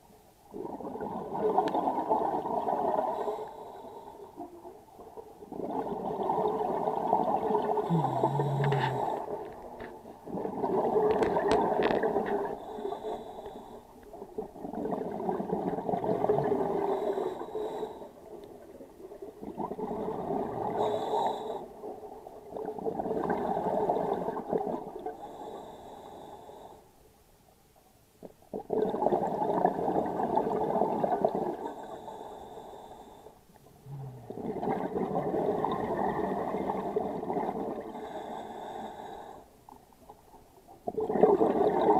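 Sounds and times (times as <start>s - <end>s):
scuba regulator bubbling exhalations: 0.5s - 3.8s, 5.5s - 17.9s, 18.5s - 21.9s, 33.7s - 38.8s, 40.9s - 41.9s.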